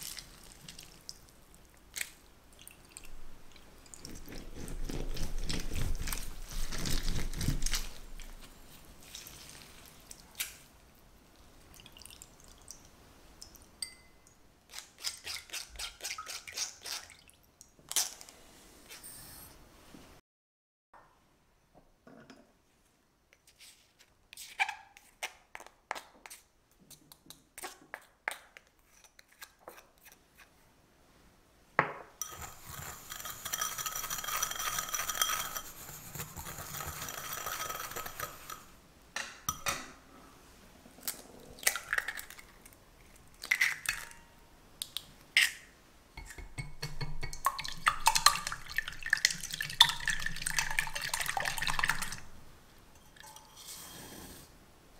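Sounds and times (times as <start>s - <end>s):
glass cups and bowls clinking: 13.8s - 14.3s, 32.2s - 35.8s
whisk beating eggs in metal pan: 32.2s - 38.7s
whisk scraping in glass bowl: 32.2s - 38.7s.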